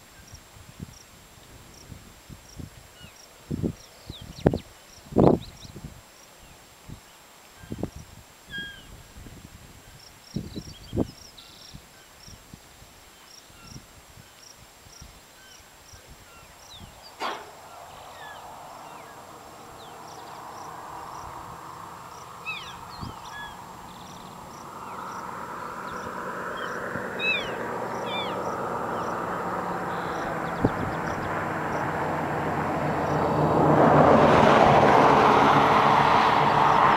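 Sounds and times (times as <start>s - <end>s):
distant engine noise: 16.3s - 36.9s
low bumps: 17.0s - 36.9s.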